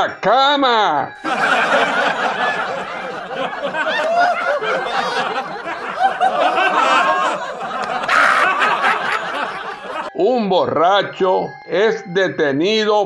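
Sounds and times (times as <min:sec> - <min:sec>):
audience laughing: 0:01.2 - 0:10.1.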